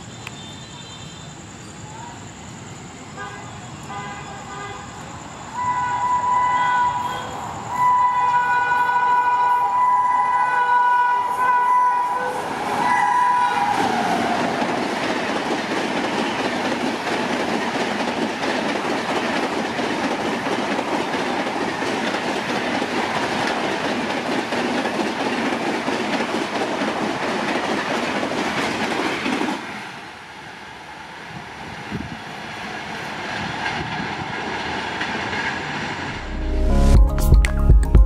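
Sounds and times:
train coaches rushing and clattering: 0:05.0 - 0:36.1
locomotive horn: 0:05.6 - 0:14.0.

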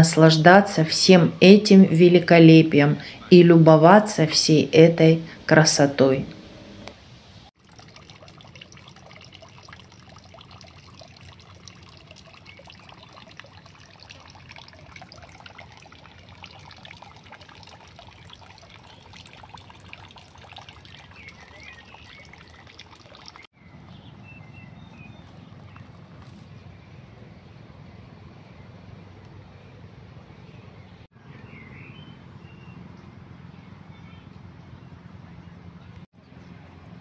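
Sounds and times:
low rumbling outdoor background: 0:00.0 - 0:37.0
water trickling into stone basin: 0:07.4 - 0:26.6.

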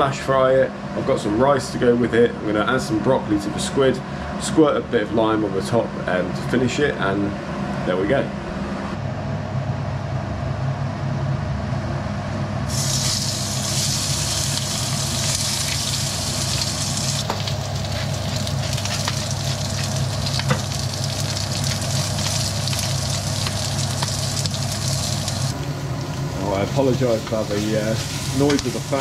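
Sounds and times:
kitchen extractor fan hum: 0:00.0 - 0:29.0
squid sizzling in hot oil: 0:12.7 - 0:29.0.

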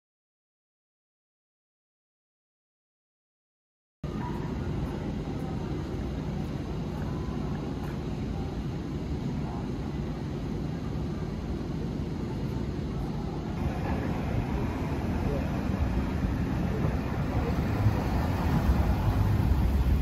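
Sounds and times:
distant traffic rumble: 0:04.1 - 0:20.0.

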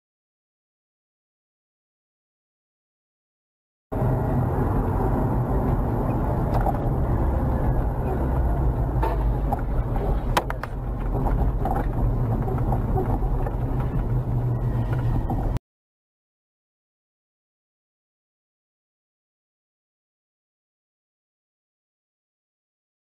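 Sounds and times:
road and engine noise inside car: 0:04.0 - 0:15.6.

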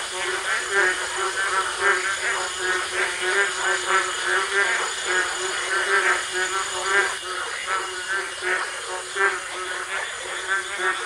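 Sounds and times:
chorus of frogs calling: 0:00.0 - 0:11.0.

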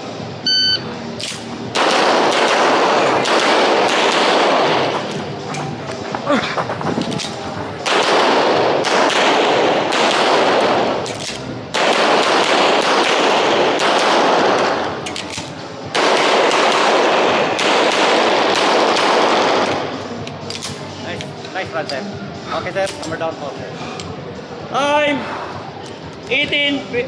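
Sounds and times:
rapid gunfire: 0:01.7 - 0:05.1, 0:07.8 - 0:11.0, 0:11.7 - 0:14.8, 0:15.9 - 0:19.9.

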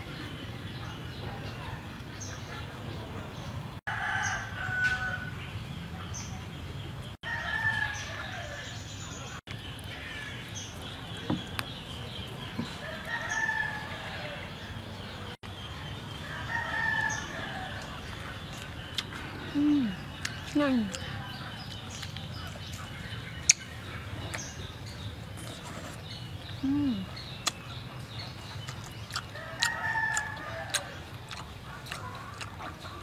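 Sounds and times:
rural background: 0:00.0 - 0:33.0
roosters crowing: 0:03.9 - 0:05.4, 0:07.2 - 0:08.8, 0:12.7 - 0:14.7, 0:16.2 - 0:17.9, 0:29.3 - 0:31.1.

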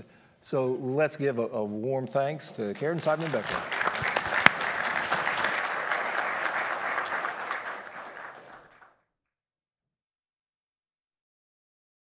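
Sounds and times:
audience applauding: 0:02.8 - 0:09.0
loud single clap: 0:03.0 - 0:08.8.

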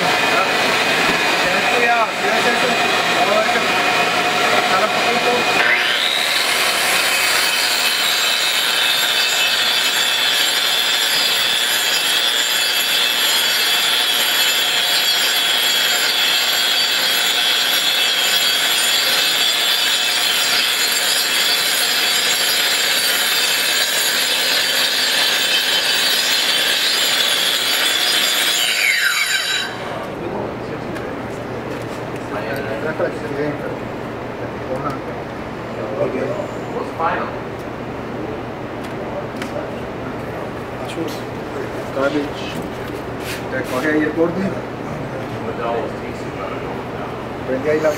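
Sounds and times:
grinding concrete floor: 0:00.0 - 0:30.2
angle grinder whine: 0:00.0 - 0:30.4.

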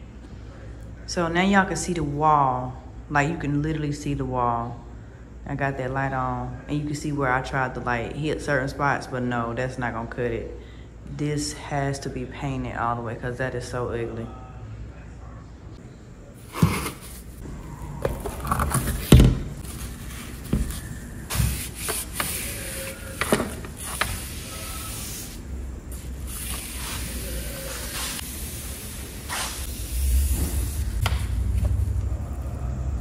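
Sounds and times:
rustling of handled things: 0:18.0 - 0:24.1.

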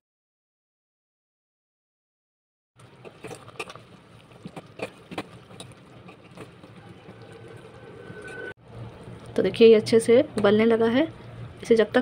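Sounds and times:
syrup bubbling: 0:02.8 - 0:10.0
spoon clinking and scraping pot: 0:04.5 - 0:08.5.

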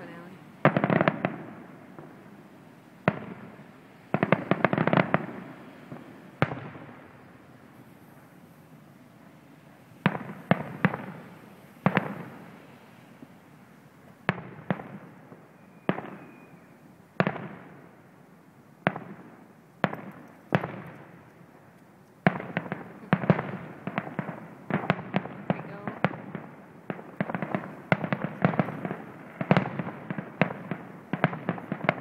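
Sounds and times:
distant firework bangs: 0:00.0 - 0:18.2, 0:18.8 - 0:32.0
rolling echo of bangs: 0:00.6 - 0:02.2, 0:18.9 - 0:21.0, 0:22.3 - 0:32.0.

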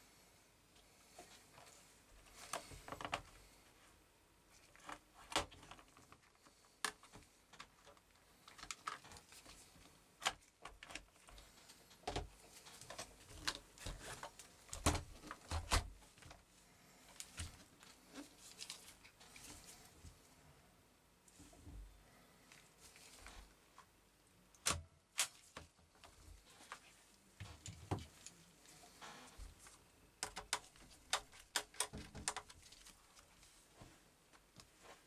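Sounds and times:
plastic clicks and knocks: 0:30.2 - 0:32.6.

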